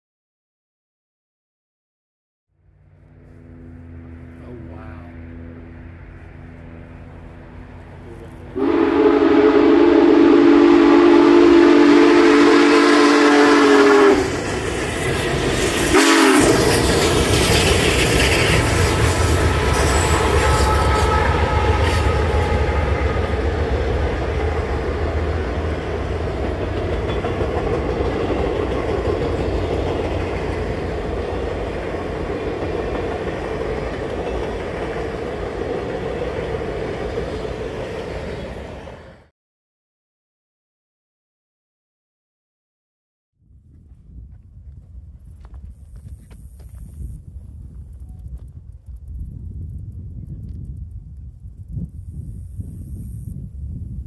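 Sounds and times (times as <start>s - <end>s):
train rumbling and clattering past: 2.7s - 39.3s
steam locomotive whistle: 8.6s - 14.5s, 15.6s - 16.9s, 18.4s - 25.1s.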